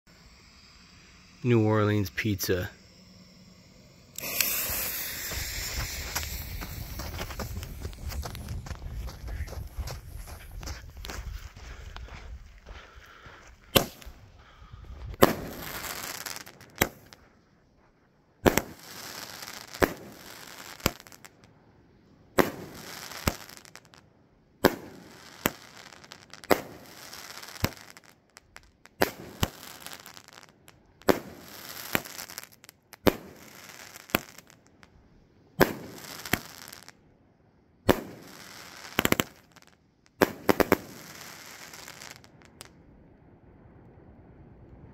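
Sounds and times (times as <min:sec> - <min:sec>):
firework shell bursting bang: 0:04.1 - 0:08.6, 0:13.8 - 0:14.1
firework launch thump: 0:04.2 - 0:11.2, 0:13.7 - 0:14.2.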